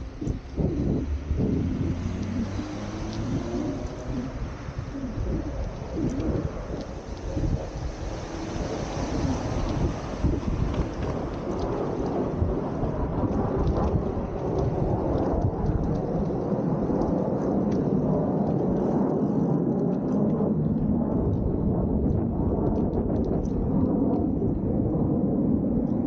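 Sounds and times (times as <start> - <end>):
low rumbling noise: 0.0 - 26.0
faint clicks: 0.2 - 24.6.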